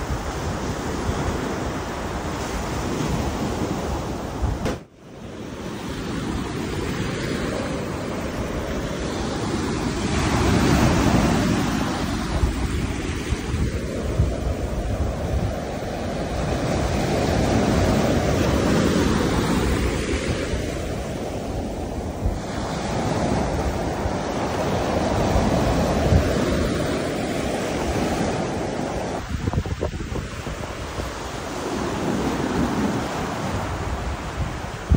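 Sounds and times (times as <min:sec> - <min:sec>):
ocean surf breaking on beach: 0:00.0 - 0:34.9
wind rumbling on microphone: 0:00.0 - 0:34.9.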